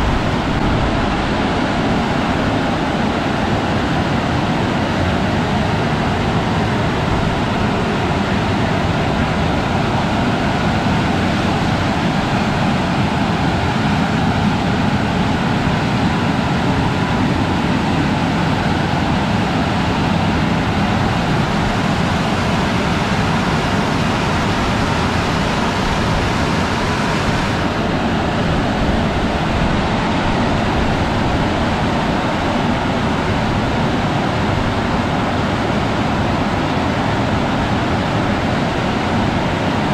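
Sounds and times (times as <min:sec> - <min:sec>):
car wash gantry rushing: 0:20.1 - 0:33.9.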